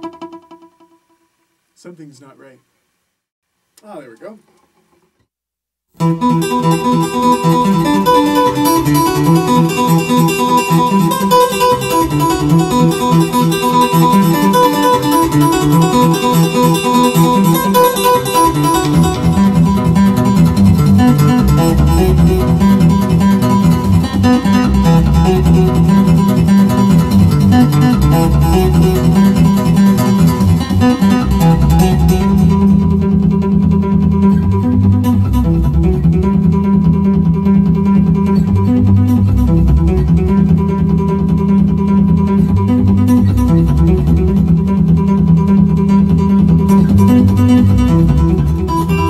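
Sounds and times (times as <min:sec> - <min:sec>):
fingerstyle acoustic guitar: 0:06.0 - 0:49.0.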